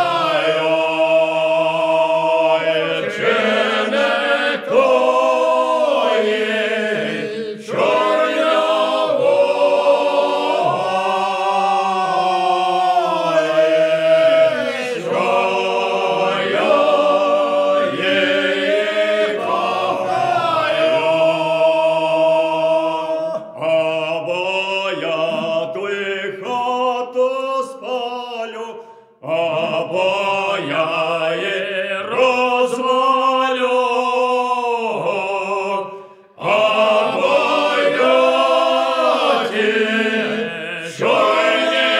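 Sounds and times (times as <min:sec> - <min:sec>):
group of folk singers singing: 0:00.0 - 0:41.9.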